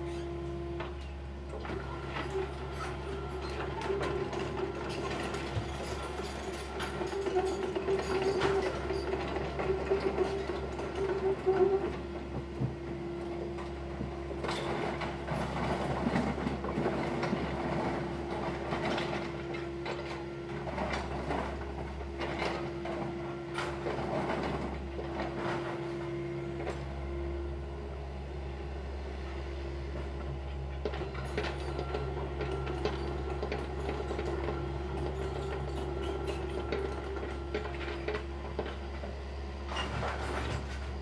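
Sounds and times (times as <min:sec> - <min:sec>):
excavator engine humming: 0:00.0 - 0:41.0.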